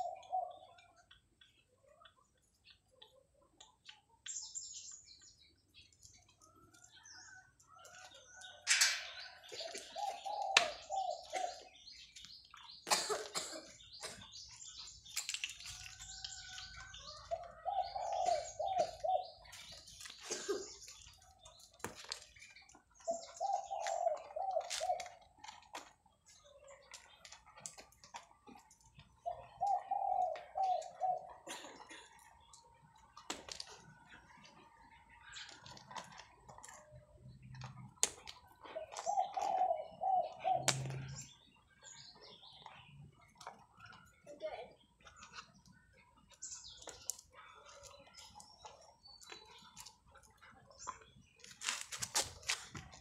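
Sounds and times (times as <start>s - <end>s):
doves cooing: 0.0s - 2.0s, 6.4s - 14.2s, 16.0s - 21.6s, 22.6s - 25.6s, 27.7s - 44.0s.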